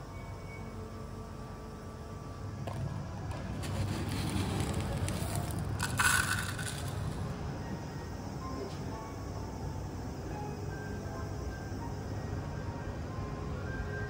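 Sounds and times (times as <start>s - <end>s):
salt grains scraped and poured: 3.4s - 7.3s.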